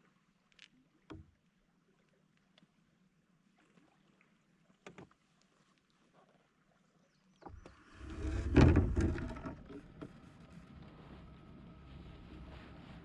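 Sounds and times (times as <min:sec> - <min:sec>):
loud rumbling rustle: 0:07.7 - 0:13.0.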